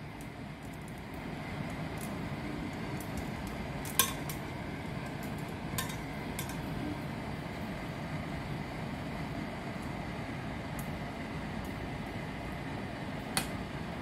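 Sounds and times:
tongs clicking against pan: 3.0s - 4.4s, 5.3s - 6.7s.

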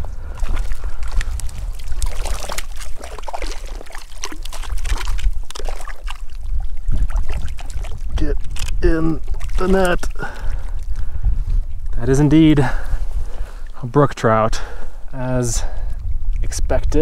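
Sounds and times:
wind buffeting microphone: 0.0s - 17.0s
fish splashing in water: 0.2s - 11.0s.

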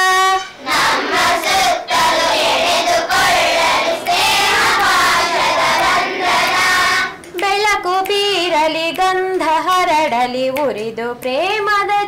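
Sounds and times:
children singing in unison: 0.0s - 7.2s.

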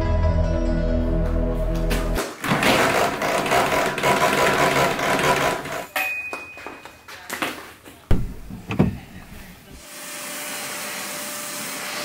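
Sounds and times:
sharp thumps: 8.1s - 9.8s.

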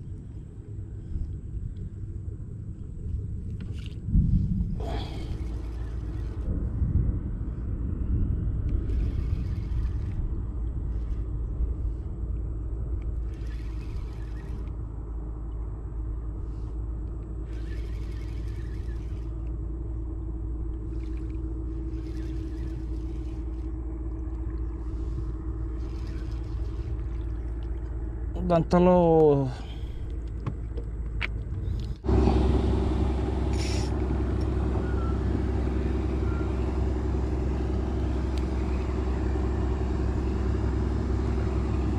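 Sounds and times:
wind buffeting microphone: 0.0s - 28.4s
faint steady hum: 0.0s - 41.9s.

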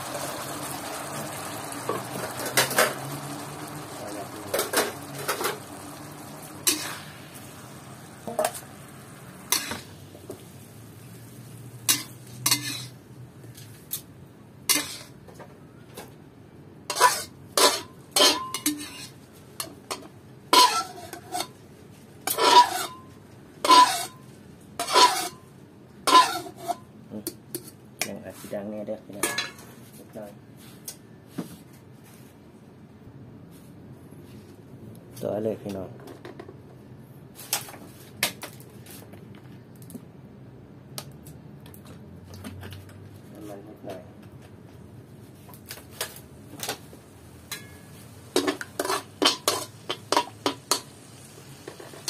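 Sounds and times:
metal spatula scraping wok: 1.8s - 10.0s, 11.8s - 13.0s, 14.7s - 15.2s, 16.9s - 19.2s, 20.5s - 21.6s, 22.3s - 24.2s, 24.8s - 25.5s, 26.1s - 26.9s, 47.5s - 52.0s.

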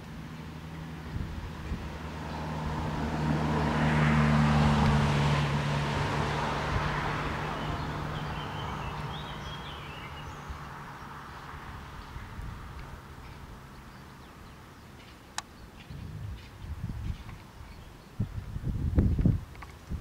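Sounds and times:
vehicle driving past: 0.2s - 15.0s.

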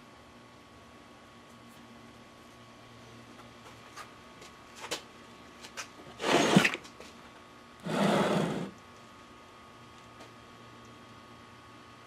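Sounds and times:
wooden flasks scraping: 6.2s - 6.8s, 7.9s - 8.8s.

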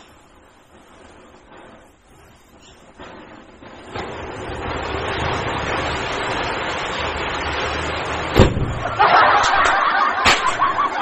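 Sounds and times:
sharp crack: 2.8s - 11.0s.

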